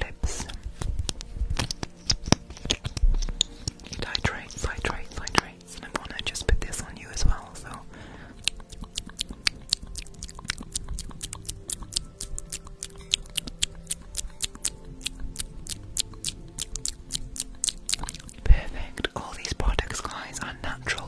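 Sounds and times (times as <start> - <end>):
faint background music: 0.0 - 21.0
sharp plastic clicking: 0.8 - 6.2.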